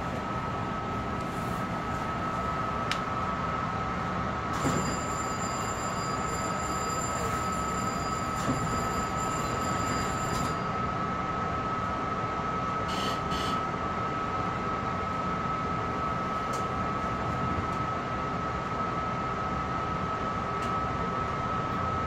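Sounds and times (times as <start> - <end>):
railcar equipment humming: 0.0 - 22.0
high electronic ringing: 4.7 - 10.7.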